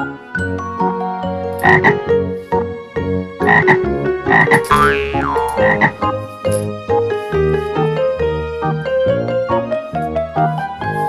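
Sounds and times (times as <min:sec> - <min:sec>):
cheerful children's music: 0:00.0 - 0:11.0
frog croaks: 0:01.6 - 0:02.1, 0:03.4 - 0:06.2.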